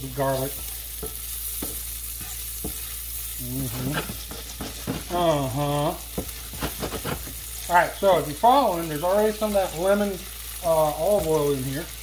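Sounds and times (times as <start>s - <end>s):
spatula scraping pan: 0.0s - 7.7s
onion sizzling in frying pan: 0.0s - 12.0s
man humming: 3.4s - 4.2s, 5.1s - 6.0s.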